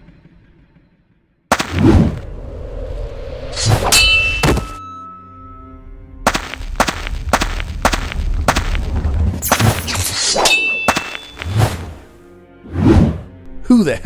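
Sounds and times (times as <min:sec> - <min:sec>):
sharp metallic clangs: 0:03.6 - 0:07.5, 0:09.4 - 0:11.6
clang ringing on a high note: 0:03.9 - 0:05.9.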